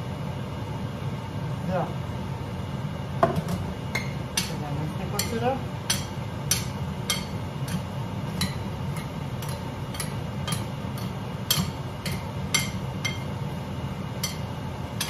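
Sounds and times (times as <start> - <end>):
steady low hum: 0.0 - 15.0
spoon clicking against bowl: 8.4 - 13.3.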